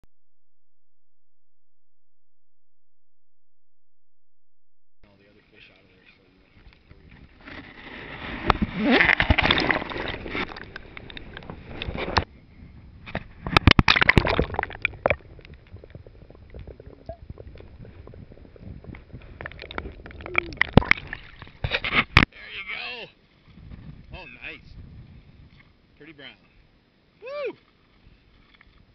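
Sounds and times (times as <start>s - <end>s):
water splashing and gurgling: 7.0s - 12.3s, 13.1s - 22.3s.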